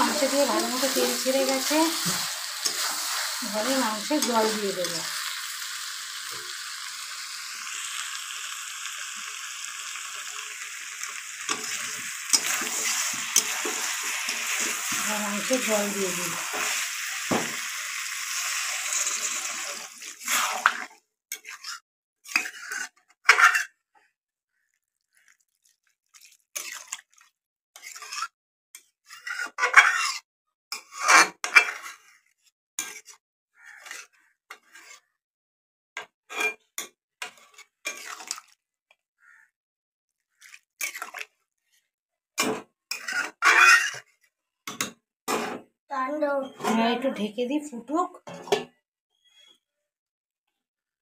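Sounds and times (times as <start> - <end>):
metal spatula scraping a pan: 0.0 - 6.7, 11.4 - 23.7, 27.8 - 32.2, 32.8 - 35.1, 37.2 - 38.5, 40.4 - 41.3, 42.4 - 44.2
food sizzling in oil: 0.0 - 22.8, 37.3 - 38.5.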